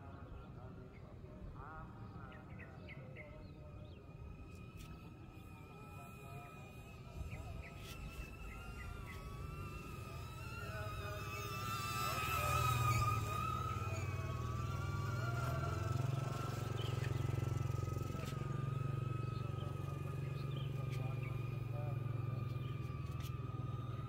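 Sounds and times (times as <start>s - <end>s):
drone propellers buzzing: 3.6s - 24.0s.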